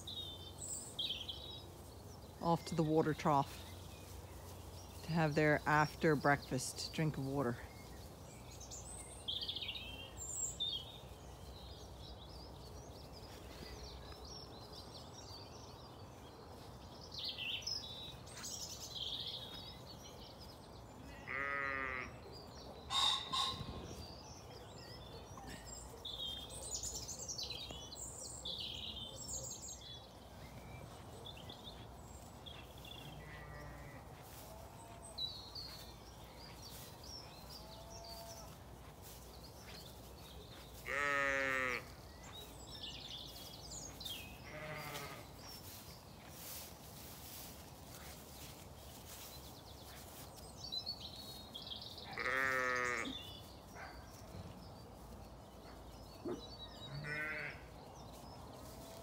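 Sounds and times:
small birds chirping: 0.0s - 59.0s
sheep bleating: 21.2s - 22.1s, 33.1s - 34.0s, 40.8s - 41.9s, 44.4s - 45.2s, 52.1s - 53.2s, 56.9s - 57.7s.

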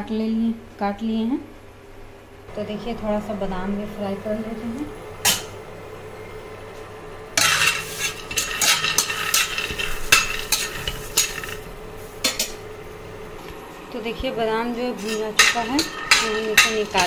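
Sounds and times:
nuts clattering in a pan: 7.4s - 11.6s
spatula scraping a pan: 7.4s - 11.6s, 15.0s - 17.0s.

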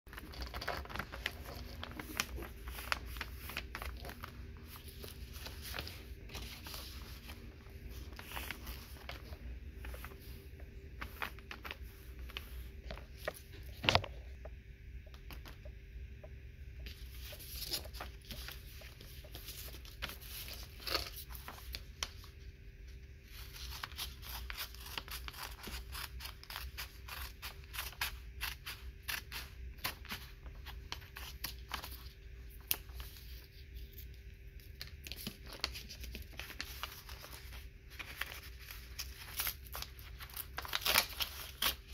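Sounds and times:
paper rustling: 0.1s - 14.2s, 16.8s - 22.3s, 23.2s - 41.9s
faint hum: 0.1s - 41.9s.

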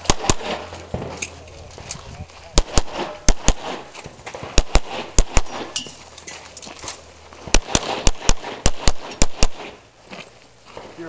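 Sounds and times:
pistol shots: 0.0s - 1.3s, 2.5s - 6.0s, 7.5s - 9.8s.

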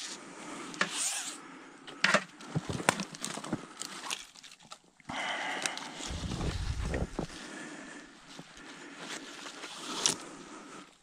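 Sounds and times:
branches scraping: 5.8s - 10.6s.

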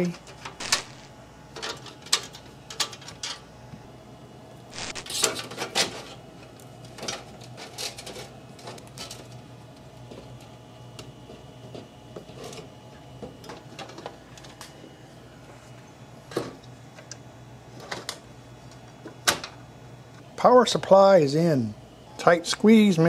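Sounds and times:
computer parts clicking and knocking: 0.4s - 3.4s.

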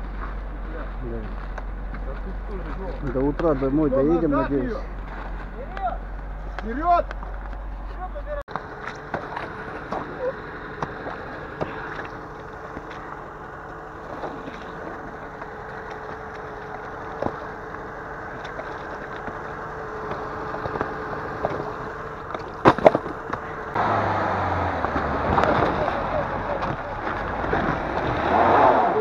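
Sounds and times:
engine hum with whine: 0.0s - 29.0s
water sloshing: 8.5s - 23.7s.

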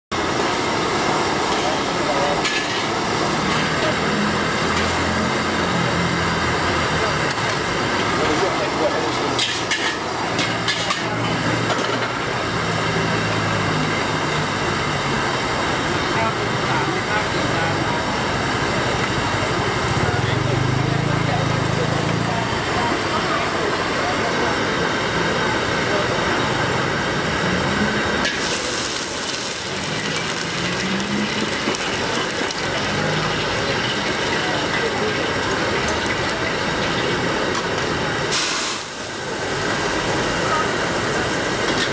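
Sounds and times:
gas wok burner roaring: 0.1s - 41.9s
street hubbub: 0.1s - 41.9s
food sizzling in a wok: 0.2s - 41.9s
vehicle engine running: 11.2s - 38.2s.

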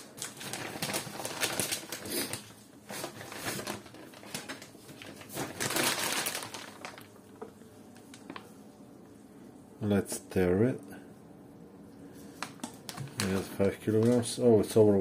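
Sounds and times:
paper packages rustling: 0.0s - 8.6s, 12.2s - 14.3s.

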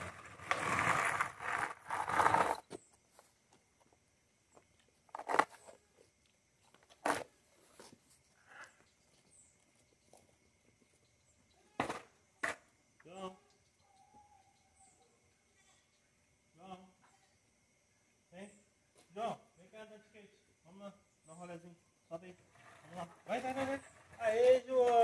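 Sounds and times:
skateboard wheels rolling on concrete: 0.0s - 12.9s, 22.3s - 25.0s.

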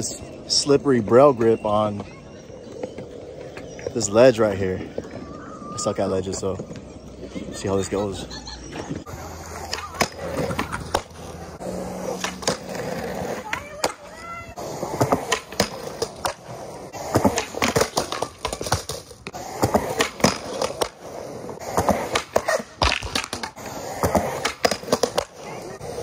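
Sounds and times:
skateboard wheels rolling on concrete: 0.0s - 26.0s
skateboard scraping concrete ledge: 8.6s - 26.0s
skateboard clacks and pops: 9.6s - 11.2s, 12.1s - 14.1s, 14.9s - 21.0s, 21.6s - 26.0s.

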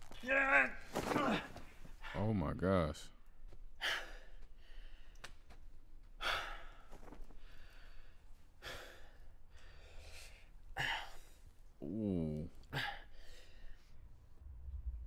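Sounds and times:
man breathing heavily: 3.7s - 5.2s, 6.1s - 11.6s, 12.7s - 14.1s.

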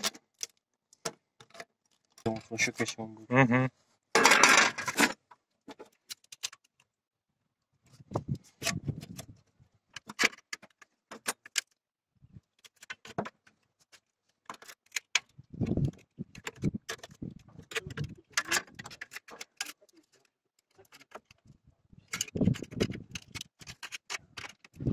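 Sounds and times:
sheet metal clinking and crinkling: 4.2s - 6.9s, 12.6s - 21.4s.

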